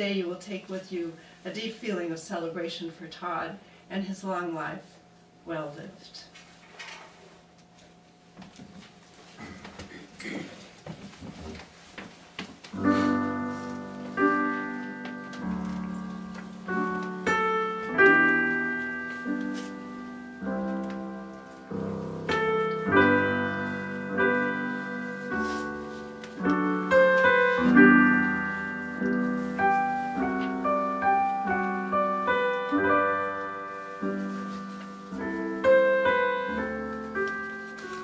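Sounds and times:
piano playing classical music: 0:12.8 - 0:38.0.

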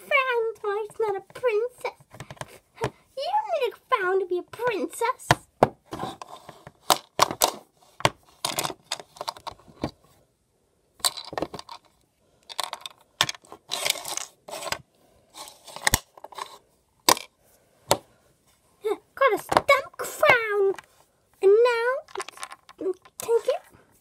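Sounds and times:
plastic toys clicking and clattering: 0:02.0 - 0:02.9, 0:06.1 - 0:10.0, 0:11.0 - 0:14.8, 0:15.4 - 0:17.3, 0:22.0 - 0:23.6.

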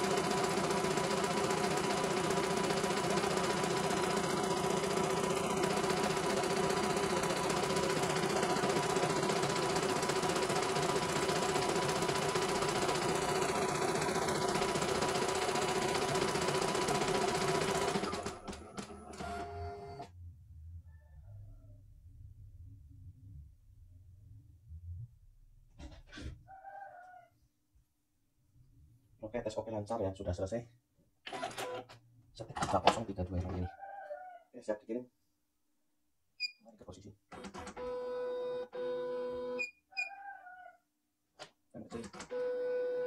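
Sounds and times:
embroidery machine stitching: 0:00.0 - 0:20.1, 0:31.3 - 0:32.0, 0:37.3 - 0:38.0, 0:41.8 - 0:43.0.

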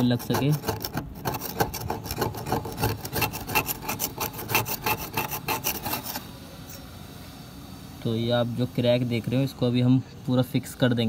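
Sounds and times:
hacksaw scraping plastic: 0:00.0 - 0:06.3.

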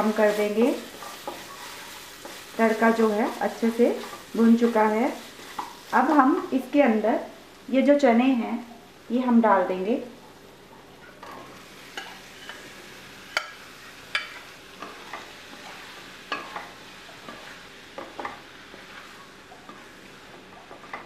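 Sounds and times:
spatula clacking and scraping pan: 0:00.0 - 0:04.8, 0:05.4 - 0:05.8, 0:11.0 - 0:21.0
food sizzling in a pan: 0:00.0 - 0:21.0.

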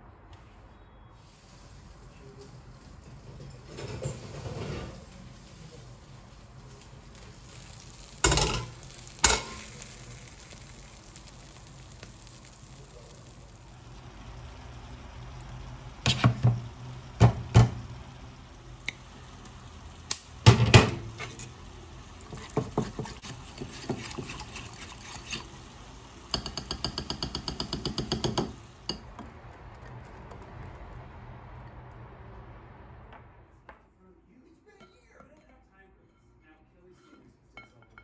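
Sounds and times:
whisk clinking against glass bowl: 0:26.3 - 0:29.0
bowl and utensils knocking on worktop: 0:26.4 - 0:29.0.

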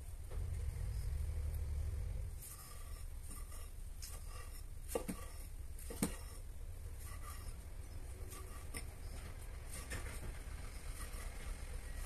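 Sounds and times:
low hum: 0:00.0 - 0:03.3.

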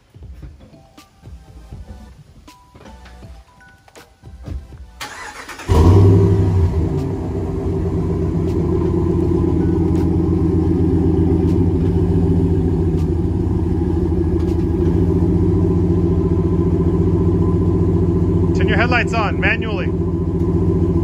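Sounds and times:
truck engine idling: 0:04.4 - 0:21.0.

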